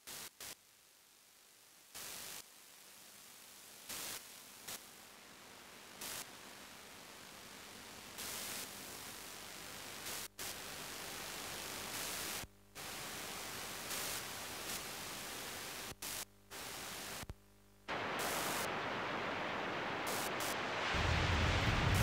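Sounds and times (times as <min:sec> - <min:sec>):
static hiss: 0:00.0 - 0:22.0
low rumble: 0:21.0 - 0:22.0.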